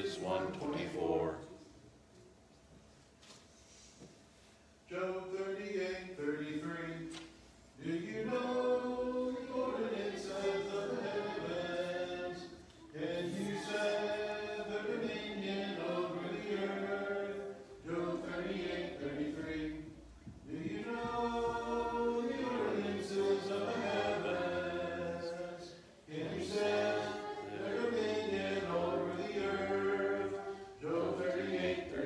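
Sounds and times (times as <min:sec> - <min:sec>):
voices chanting in unison: 0:07.8 - 0:32.0.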